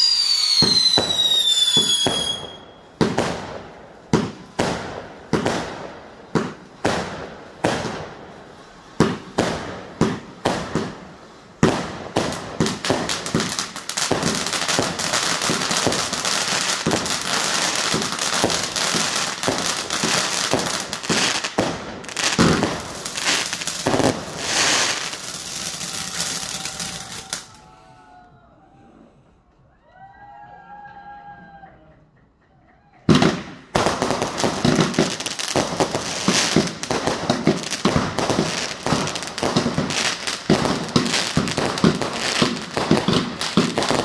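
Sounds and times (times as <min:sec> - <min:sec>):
fireworks bangs and crackling: 0:00.0 - 0:27.6, 0:33.1 - 0:44.0.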